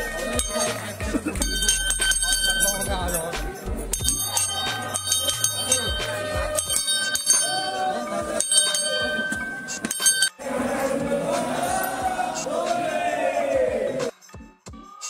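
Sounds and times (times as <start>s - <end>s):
voice: 0.0s - 9.4s
bright bell-like ringing: 0.0s - 10.4s
music with steady beat: 0.0s - 15.0s.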